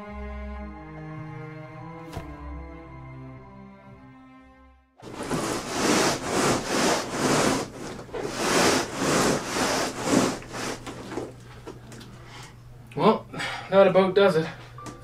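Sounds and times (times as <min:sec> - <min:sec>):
wooden crate scraping floor: 0:05.0 - 0:11.4.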